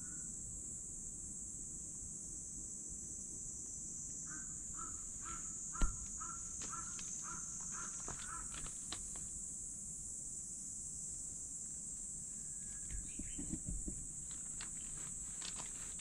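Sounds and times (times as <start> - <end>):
high insect drone: 0.0 - 16.0
crow cawing: 4.3 - 8.8
dull thump: 5.8 - 7.0, 13.1 - 14.1.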